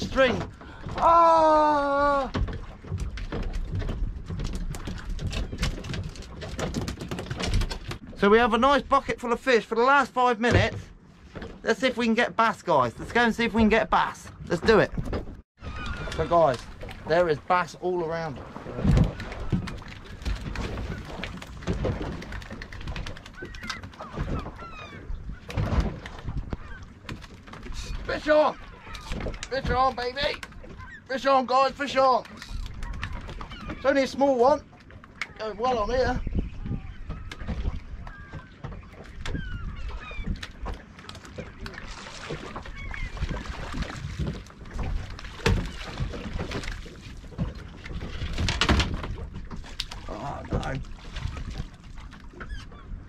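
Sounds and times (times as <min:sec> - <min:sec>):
water noise: 0:00.0 - 0:53.0
wind: 0:00.0 - 0:53.0
seabirds honking calls: 0:15.6 - 0:47.0, 0:50.2 - 0:53.0
wind rumbling on microphone: 0:35.7 - 0:40.8.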